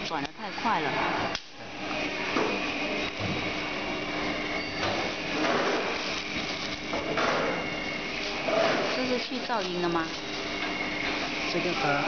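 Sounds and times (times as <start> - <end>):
welding machine humming: 0.0 - 12.0
plastic film rustling: 5.8 - 7.2, 7.9 - 11.8.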